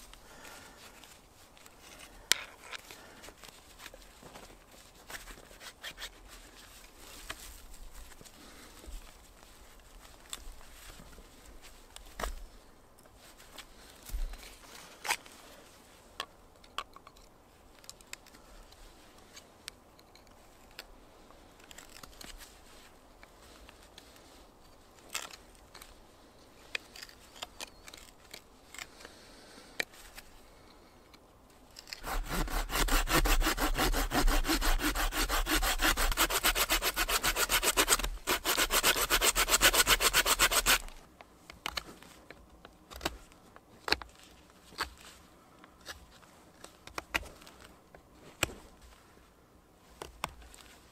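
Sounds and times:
knife whittling wood: 0:31.9 - 0:40.9
wood being sawn: 0:32.0 - 0:40.9.

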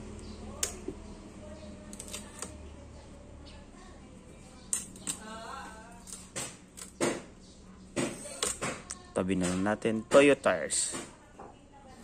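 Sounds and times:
steady low hum: 0:00.0 - 0:08.2.

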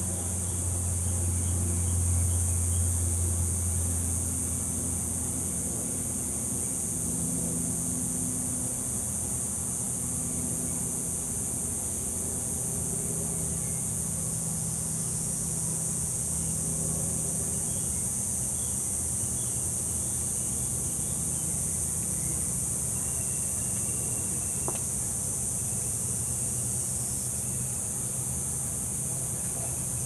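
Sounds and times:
insect chorus trilling: 0:00.0 - 0:30.0
low steady hum: 0:00.0 - 0:30.0
faint chirps: 0:22.2 - 0:24.9.

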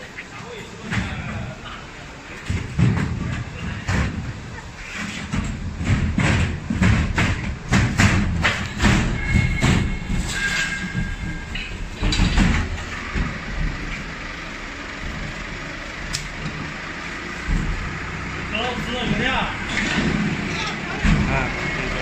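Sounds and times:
cargo knocking in steel container: 0:05.2 - 0:13.8
high squeal: 0:09.0 - 0:11.6.

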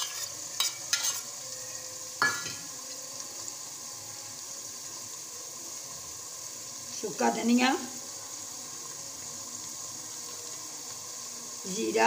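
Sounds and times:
scrape in pot: 0:00.0 - 0:01.4
vegetables sizzling in oil: 0:00.0 - 0:12.0.

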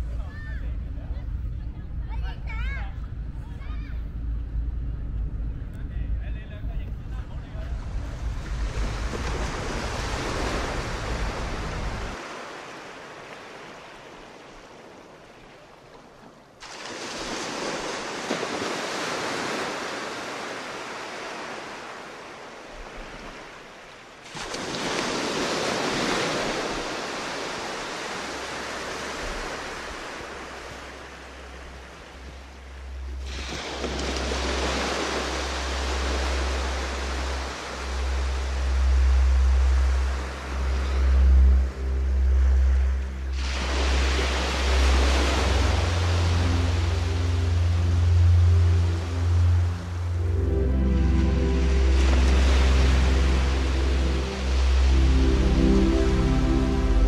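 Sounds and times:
low rumble: 0:00.0 - 0:12.2, 0:29.2 - 0:57.0
sea waves washing in: 0:05.9 - 0:57.0.

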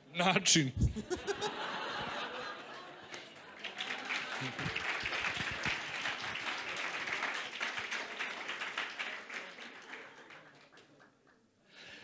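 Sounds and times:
audience clapping: 0:03.1 - 0:11.4.

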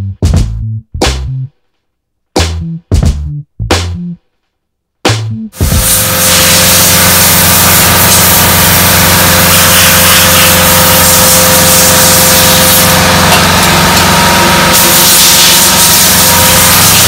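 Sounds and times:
machine humming and hissing: 0:05.6 - 0:17.0.

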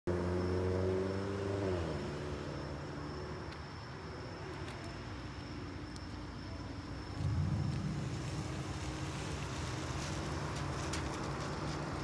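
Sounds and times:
passing train rumble: 0:06.6 - 0:12.0.

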